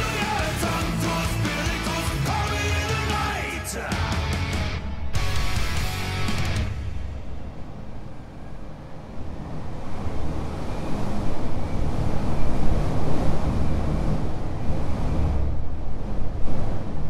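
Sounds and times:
rushing wind-like noise: 4.7s - 17.0s.

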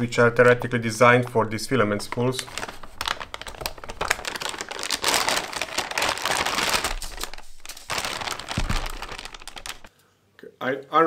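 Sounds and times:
plastic bag crinkling: 1.7s - 9.9s
small crackles and taps: 8.4s - 9.9s.

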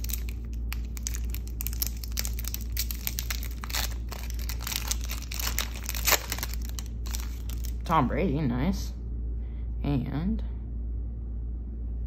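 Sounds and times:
foil wrapper tearing and crinkling: 0.0s - 7.9s.

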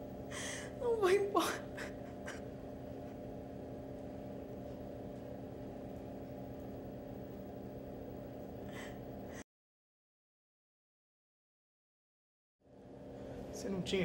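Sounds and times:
low hum with faint hiss: 0.0s - 9.4s, 12.7s - 14.0s.

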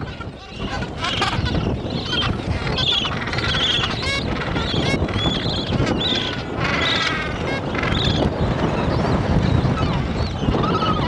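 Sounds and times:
penguins calling: 0.0s - 8.8s
wind noise on microphone: 0.0s - 11.0s.

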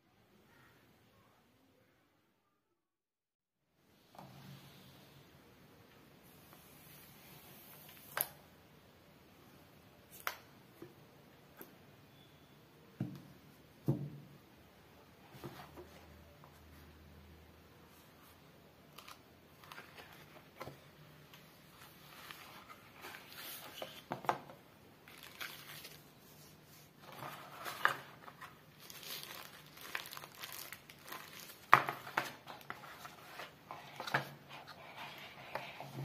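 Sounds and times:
packaging rustling and crinkling: 25.0s - 26.2s, 27.0s - 34.4s.

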